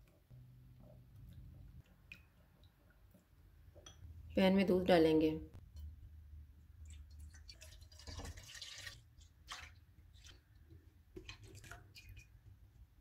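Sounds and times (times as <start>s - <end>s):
milk pouring into a pan: 6.8s - 12.4s.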